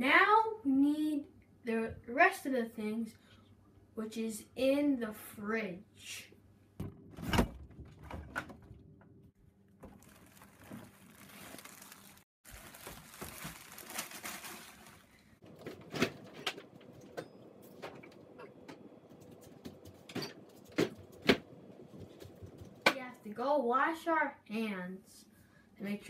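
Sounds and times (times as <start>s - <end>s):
plastic bags rustling: 9.8s - 16.9s.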